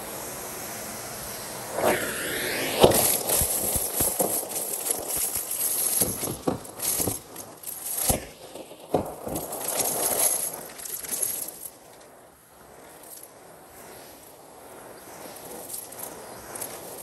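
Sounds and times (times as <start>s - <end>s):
debris clinking and crackling: 3.0s - 12.1s.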